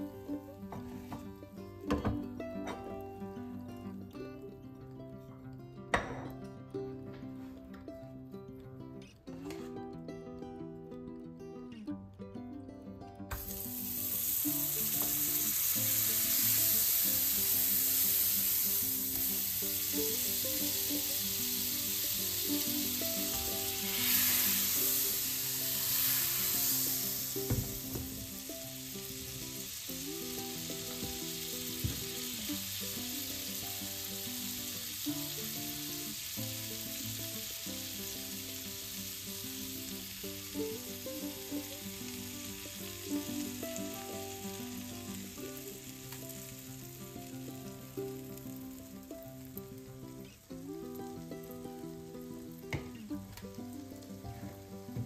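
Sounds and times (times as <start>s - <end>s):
soft background music: 12.7s - 55.0s
butter sizzling in frying pan: 13.3s - 55.0s.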